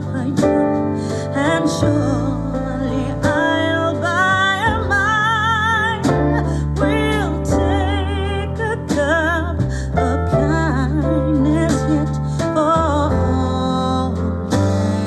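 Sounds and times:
held bass notes: 0:00.0 - 0:15.0.

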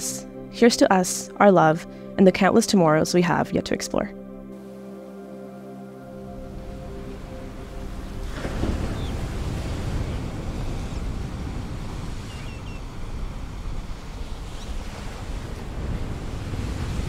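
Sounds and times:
ocean surf washing ashore: 0:04.6 - 0:17.0
wind buffeting microphone: 0:06.4 - 0:17.0.

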